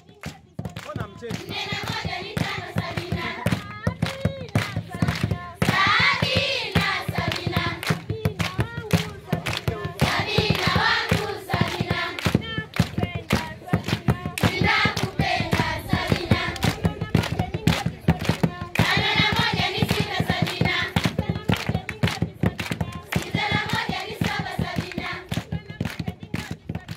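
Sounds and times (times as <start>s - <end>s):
rhythmic hand clapping: 0.0s - 26.9s.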